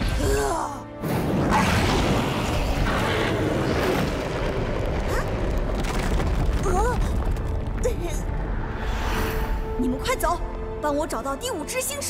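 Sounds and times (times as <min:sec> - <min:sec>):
rumbling boom: 0:01.2 - 0:08.8.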